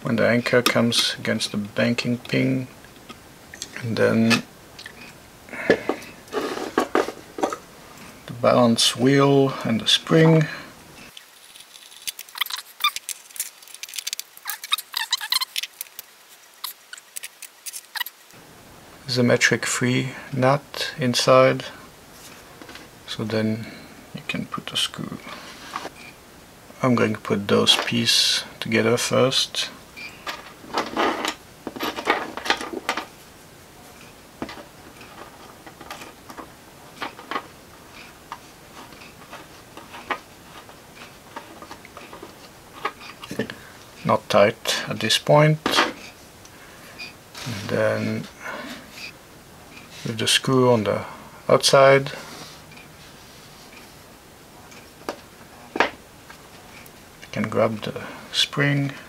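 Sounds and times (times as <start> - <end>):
small plastic parts clicking: 11.1 - 18.2.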